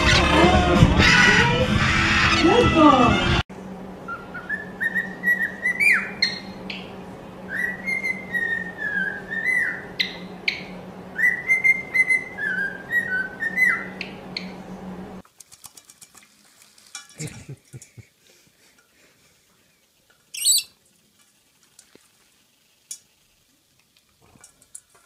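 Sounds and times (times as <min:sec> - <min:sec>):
bird whistling a warbling tune: 0:04.1 - 0:06.5, 0:07.5 - 0:10.2, 0:11.2 - 0:14.0, 0:20.4 - 0:20.7
rising bird chirps: 0:20.3 - 0:20.7.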